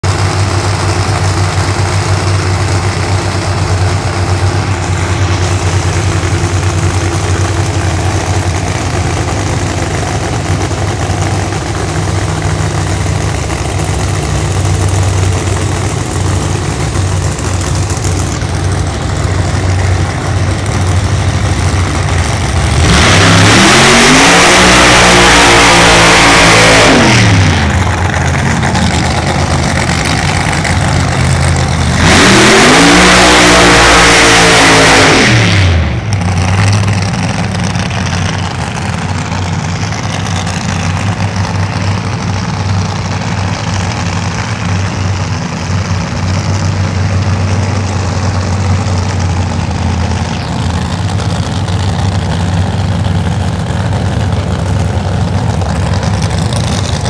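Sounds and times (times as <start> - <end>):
race car engines idling: 0.0 - 57.0
engine revving loudly: 21.9 - 36.1.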